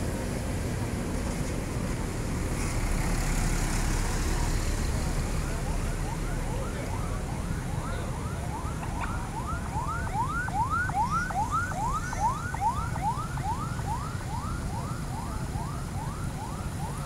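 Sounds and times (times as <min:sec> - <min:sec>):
vehicles passing rumble: 0:00.0 - 0:17.0
emergency siren whooping: 0:03.5 - 0:17.0.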